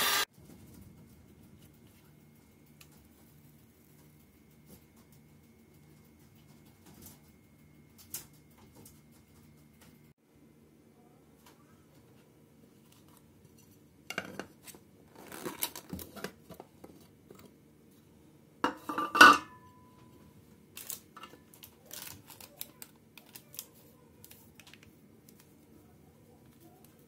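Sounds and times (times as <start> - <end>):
faint steady hum: 0.0 - 27.0
metal pan clattering on plate: 18.7 - 19.6.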